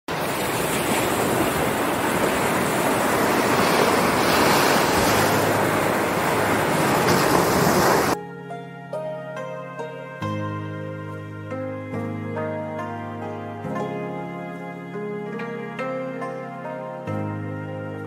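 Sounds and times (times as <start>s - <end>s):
waves washing up a sandy shore: 0.1s - 8.2s
soft music: 2.2s - 18.0s.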